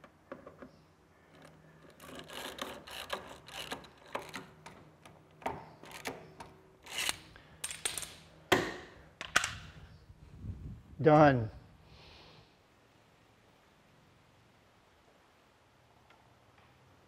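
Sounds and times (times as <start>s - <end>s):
screwdriver rasping whir: 1.3s - 4.9s, 5.8s - 7.3s.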